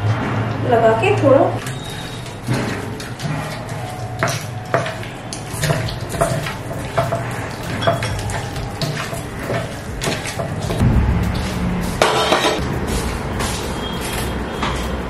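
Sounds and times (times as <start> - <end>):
clinks against a bowl: 3.2 - 10.8.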